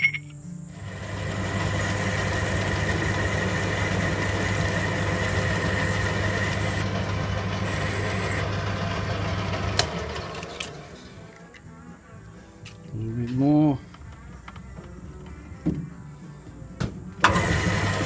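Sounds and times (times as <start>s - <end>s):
lathe motor humming and whining: 0.7s - 11.0s, 17.2s - 18.0s.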